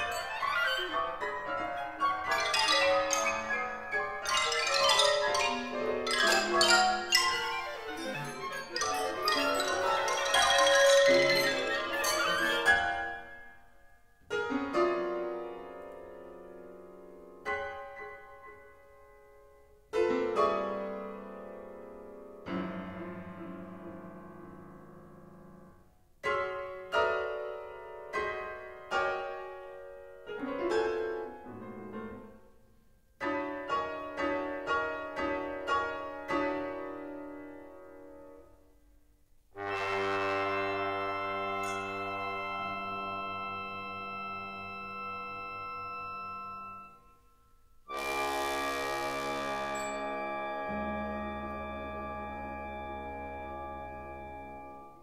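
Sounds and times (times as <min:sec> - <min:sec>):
piano chords: 0:00.0 - 0:19.2, 0:39.6 - 0:55.0.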